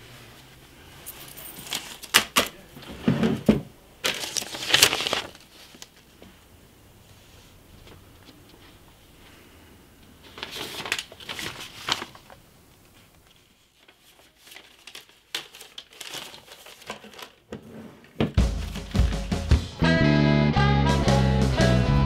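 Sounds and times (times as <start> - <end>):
paper rustling and crinkling: 1.0 - 6.4, 10.2 - 19.5.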